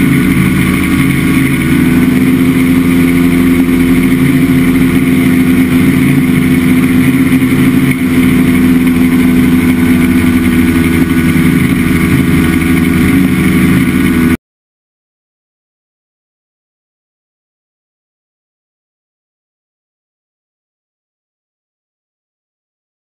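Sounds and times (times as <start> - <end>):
light airplane engine and propeller: 0.0 - 14.4.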